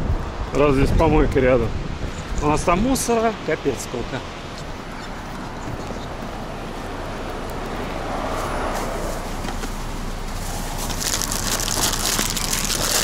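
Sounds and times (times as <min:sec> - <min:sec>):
road traffic: 0:00.0 - 0:13.0
wind: 0:00.0 - 0:13.0
vehicle passing: 0:04.3 - 0:13.0
plastic wrappers crinkling: 0:10.6 - 0:13.0.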